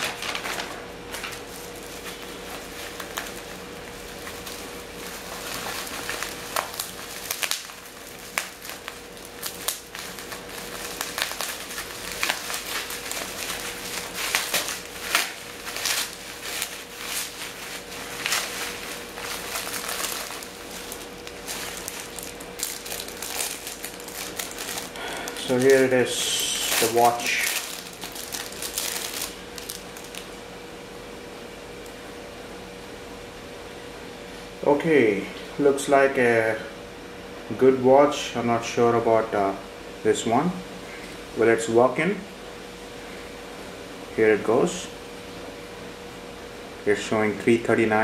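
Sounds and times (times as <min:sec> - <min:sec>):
bubble wrap crinkling: 0:00.0 - 0:30.4.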